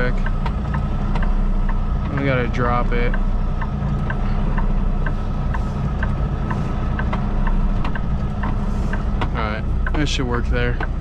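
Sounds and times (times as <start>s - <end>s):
diesel truck engine running: 0.0s - 11.0s.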